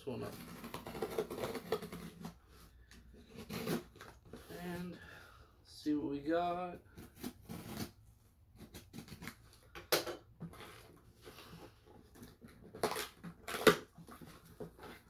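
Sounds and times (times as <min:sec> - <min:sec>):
cardboard crackling and rustling: 0:00.0 - 0:04.9, 0:10.4 - 0:15.0
box cutter slitting tape: 0:00.2 - 0:02.4, 0:03.1 - 0:04.4, 0:06.9 - 0:11.0, 0:12.0 - 0:15.0.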